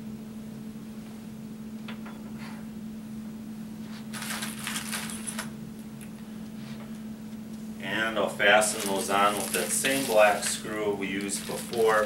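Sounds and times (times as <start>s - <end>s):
steady low hum: 0.0s - 12.0s
plastic bags rustling: 4.0s - 5.5s, 7.8s - 12.0s.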